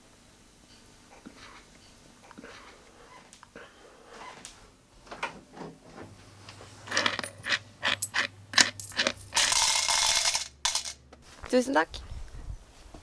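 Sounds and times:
coins clinking: 7.0 - 11.0
coins rattling: 7.0 - 11.0.

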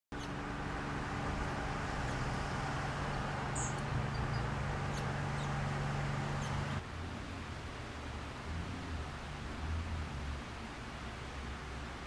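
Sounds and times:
low mechanical hum: 0.2 - 12.0
rushing noise: 0.3 - 12.0
high bird chirps: 3.2 - 5.6.

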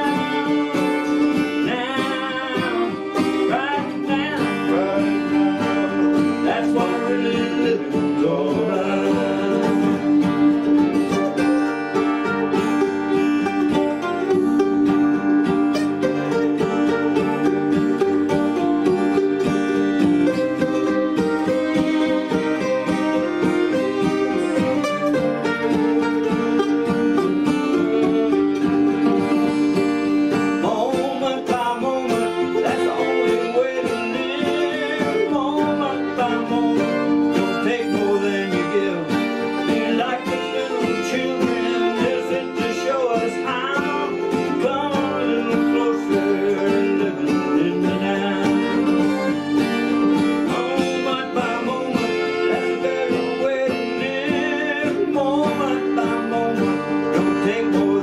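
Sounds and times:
acoustic guitar: 0.0 - 58.0
man singing: 0.0 - 58.0
mandolin: 0.0 - 58.0.

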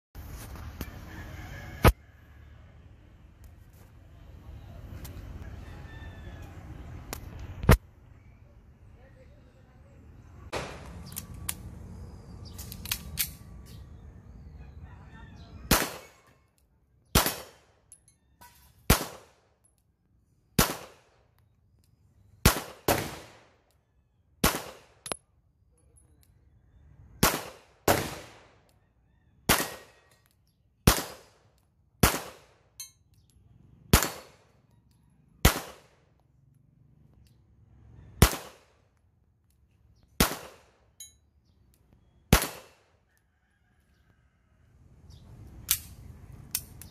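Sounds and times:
pistol shots with ringing tail: 15.7 - 16.4, 17.1 - 18.0, 18.9 - 19.5, 20.6 - 21.1, 22.4 - 23.6, 24.4 - 25.2, 27.2 - 28.6, 29.4 - 30.1, 30.8 - 31.4, 32.0 - 32.8, 33.9 - 34.6, 35.4 - 36.0, 38.2 - 38.8, 40.2 - 40.8, 42.3 - 43.0.

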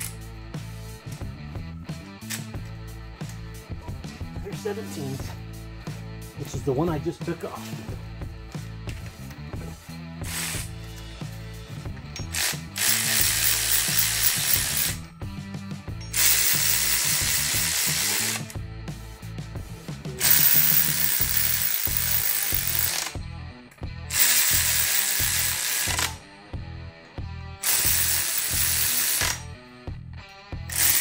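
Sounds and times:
electric ratchet spinning bolts: 0.0 - 0.2, 10.2 - 10.8, 12.1 - 15.1, 16.0 - 18.6, 20.2 - 23.2, 24.1 - 26.3, 27.6 - 29.5, 30.7 - 31.0
quiet background music: 0.0 - 31.0.

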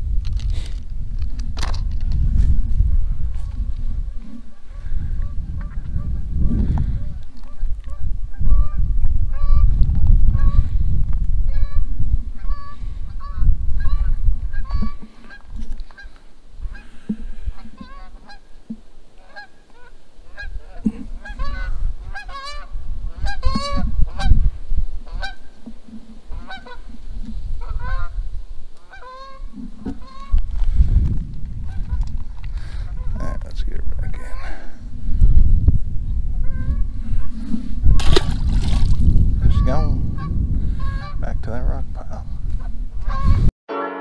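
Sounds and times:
wind rumble on microphone: 0.0 - 43.5
geese honking: 12.4 - 18.5, 19.2 - 24.4, 25.0 - 25.6, 26.3 - 26.9, 27.6 - 28.2, 28.8 - 30.4, 42.6 - 44.0.

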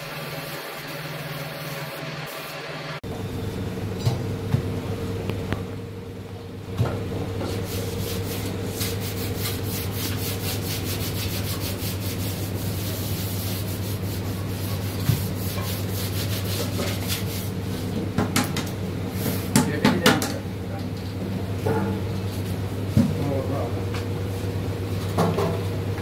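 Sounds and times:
low machine hum: 0.0 - 26.0
sanding strokes on metal: 7.6 - 17.6.

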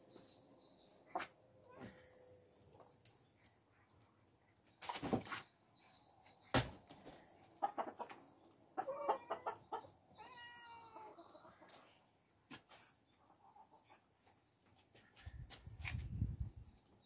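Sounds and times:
hens clucking: 7.0 - 12.0
drawn-out animal call: 7.5 - 11.8.

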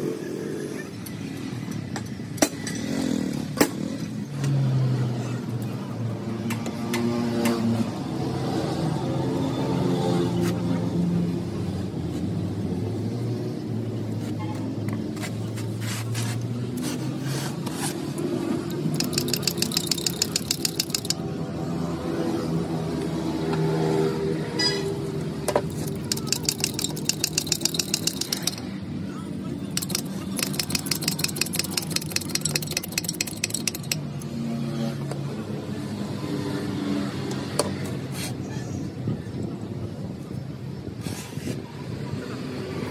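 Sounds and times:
metal wire pick scraping: 18.7 - 21.2, 25.6 - 28.8, 29.7 - 34.2
rapid sharp clicks: 18.7 - 21.2, 25.7 - 28.7, 29.7 - 34.2
vehicle engine running: 18.7 - 21.2, 25.6 - 28.9, 29.7 - 34.2.

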